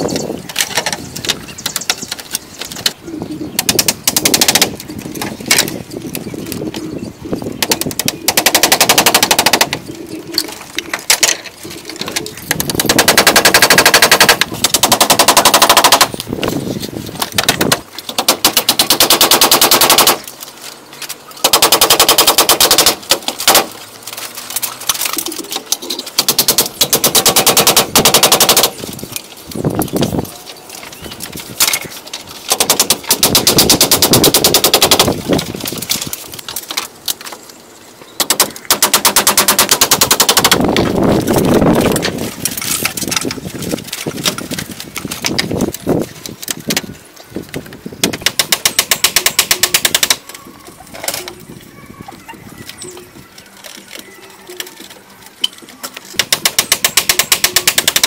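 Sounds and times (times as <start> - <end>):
wooden mallet pounding bamboo: 56.2 - 58.0.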